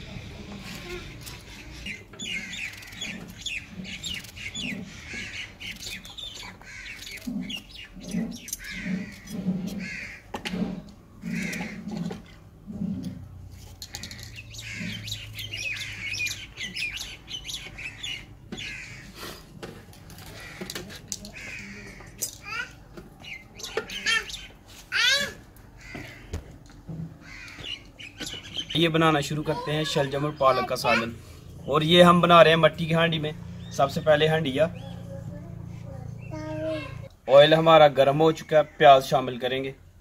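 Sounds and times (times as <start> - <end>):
birds chirping and calling: 0.5 - 39.9
crows cawing: 2.2 - 10.4, 11.2 - 12.2, 13.9 - 16.7, 17.7 - 19.4, 20.1 - 22.8, 25.0 - 28.3.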